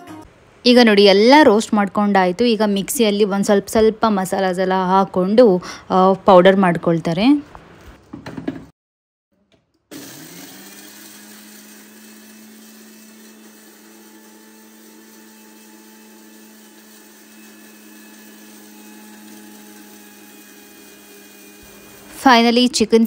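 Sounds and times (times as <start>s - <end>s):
mixer grinder motor whirring: 9.8s - 23.0s.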